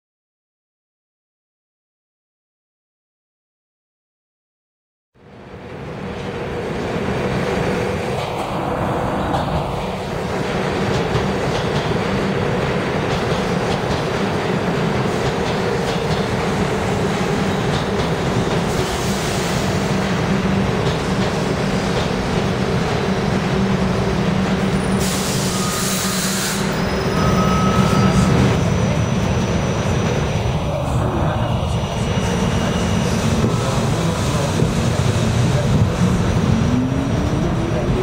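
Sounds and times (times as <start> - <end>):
subway train rumble: 5.2 - 38.0
faint wheel squeals: 24.8 - 28.4.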